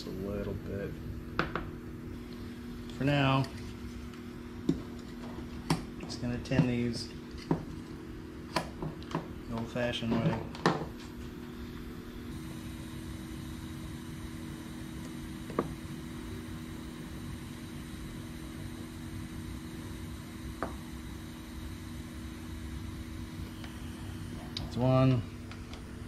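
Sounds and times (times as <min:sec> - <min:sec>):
steady low hum: 0:00.0 - 0:26.0
soldering iron hissing faintly: 0:11.0 - 0:26.0.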